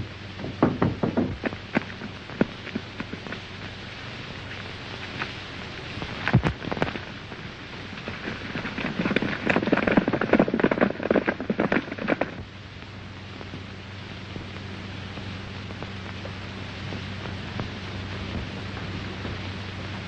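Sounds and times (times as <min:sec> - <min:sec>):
horse hooves galloping: 0:00.0 - 0:03.9, 0:06.0 - 0:12.5
steady low hum: 0:00.0 - 0:20.0
loud knock: 0:00.4 - 0:01.5.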